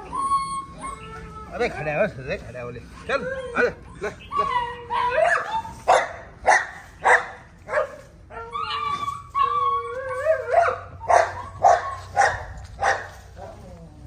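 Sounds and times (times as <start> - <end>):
puppy whining: 0.0 - 6.0, 8.2 - 12.4
puppies barking: 0.0 - 13.7.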